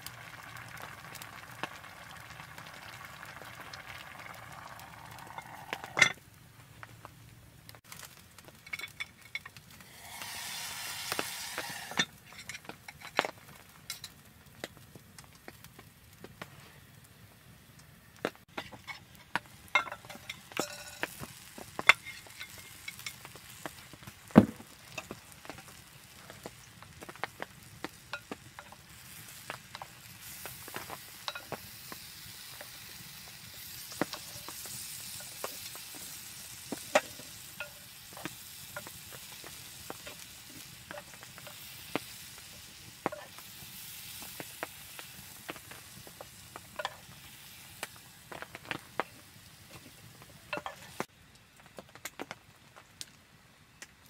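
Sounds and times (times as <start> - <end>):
wood fire crackling and popping: 0.0 - 54.0
metal dish clinking: 19.8 - 21.1.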